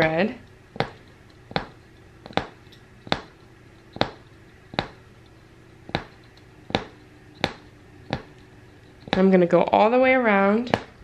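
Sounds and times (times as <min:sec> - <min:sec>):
punch needle popping through fabric: 0:00.8 - 0:05.0, 0:05.9 - 0:08.3.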